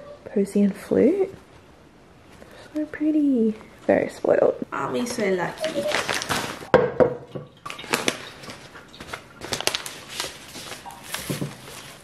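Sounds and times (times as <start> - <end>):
paper wrapping crinkling: 5.4 - 6.7, 7.6 - 12.0.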